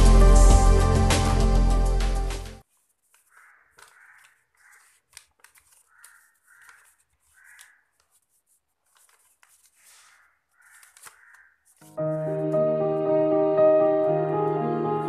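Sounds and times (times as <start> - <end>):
paper crinkling as folded: 2.6 - 12.1
faint crow cawing: 3.2 - 8.2, 9.7 - 11.8.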